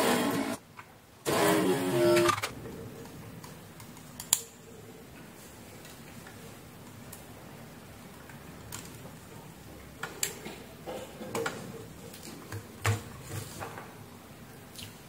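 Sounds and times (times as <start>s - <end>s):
small clicks and taps of wiring: 3.4s - 4.5s.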